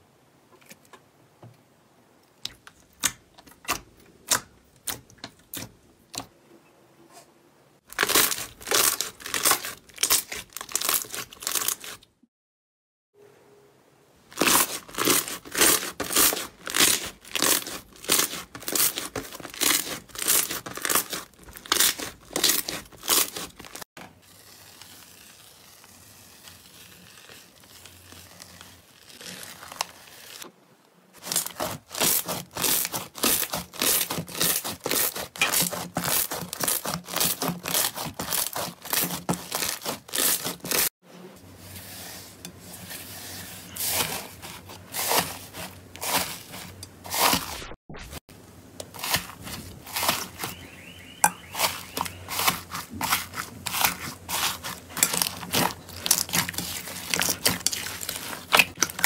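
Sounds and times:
slime squishing: 0:14.3 - 0:30.4, 0:31.2 - 0:40.9, 0:48.8 - 0:59.0.

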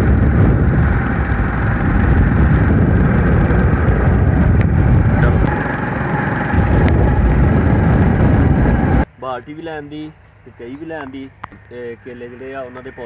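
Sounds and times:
motorcycle engine running: 0:00.0 - 0:09.0
wind rush over microphone: 0:00.0 - 0:09.1.

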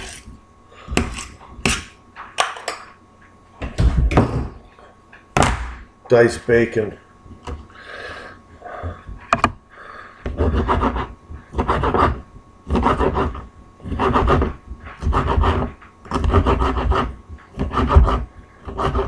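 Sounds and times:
knife cutting on cutting board: 0:00.0 - 0:00.3.

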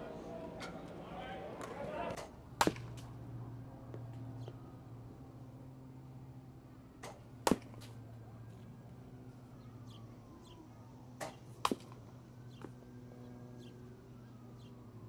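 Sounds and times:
baseball bat cracking ball: 0:01.5 - 0:03.2, 0:07.0 - 0:08.0, 0:11.2 - 0:12.0.

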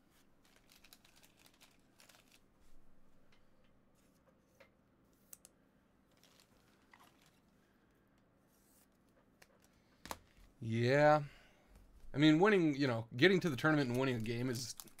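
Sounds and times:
trading cards clicking: 0:13.9 - 0:15.0.

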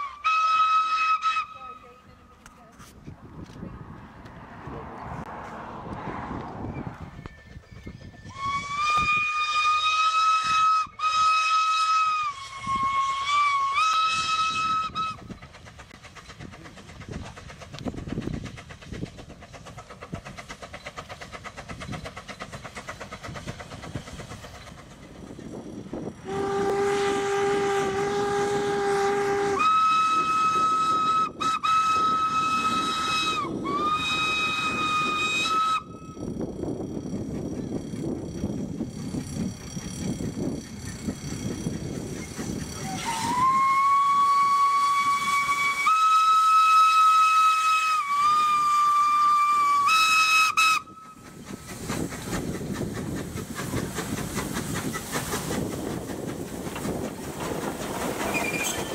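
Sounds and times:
steam whistle blasts: 0:00.0 - 0:02.0, 0:08.2 - 0:15.2, 0:26.2 - 0:36.2, 0:42.8 - 0:51.3.

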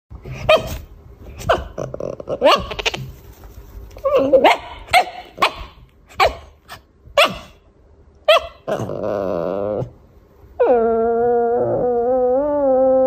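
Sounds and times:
small dog yapping: 0:00.3 - 0:03.1, 0:08.2 - 0:08.9.

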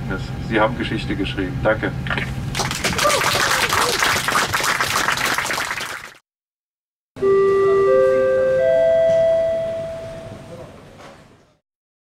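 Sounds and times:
crowd clapping: 0:02.5 - 0:06.2.

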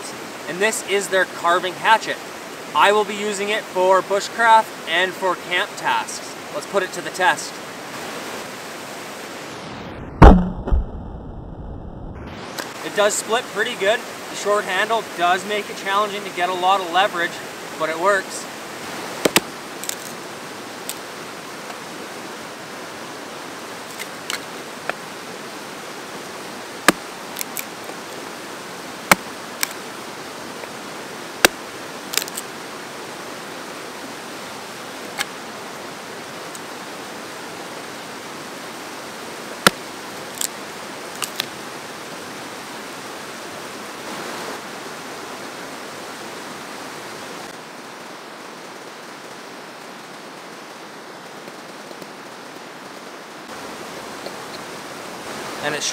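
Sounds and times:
fast-flowing creek rushing: 0:00.0 - 0:09.8, 0:12.4 - 0:55.9
hatchet splitting kindling: 0:19.2 - 0:20.1.

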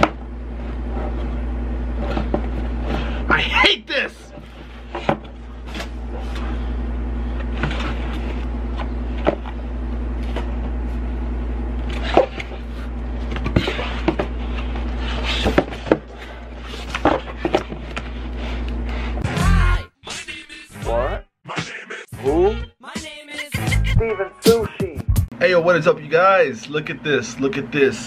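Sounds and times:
steady low hum: 0:00.0 - 0:19.8.

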